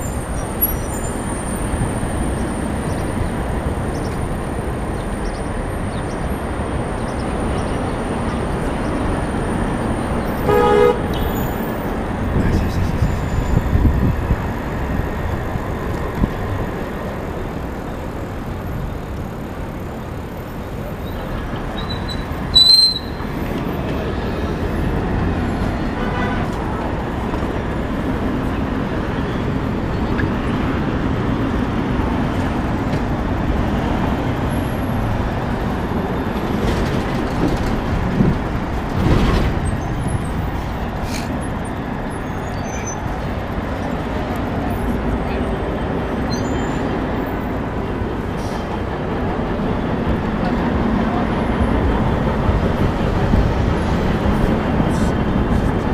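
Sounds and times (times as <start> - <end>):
passing traffic: 0.0 - 55.9
high-pitched squeal: 21.1 - 23.4.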